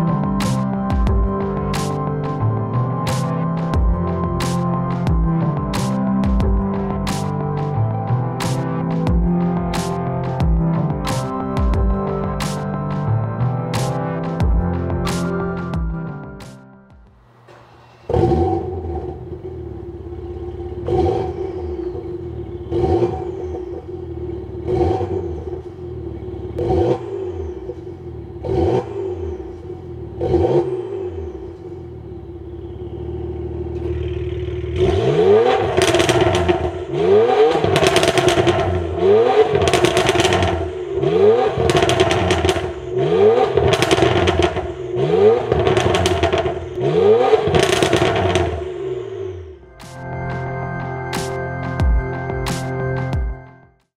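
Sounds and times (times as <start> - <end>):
engine revving: 0.0 - 16.5, 17.2 - 51.9
car engine idling: 17.1 - 49.8.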